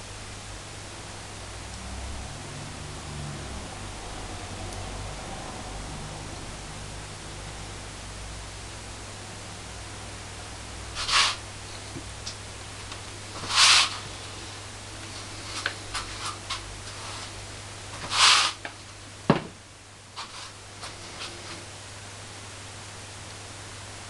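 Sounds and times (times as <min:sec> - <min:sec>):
steady hiss: 0:10.3 - 0:24.0
scraping rustles: 0:11.0 - 0:12.0, 0:12.8 - 0:19.6, 0:20.2 - 0:21.8.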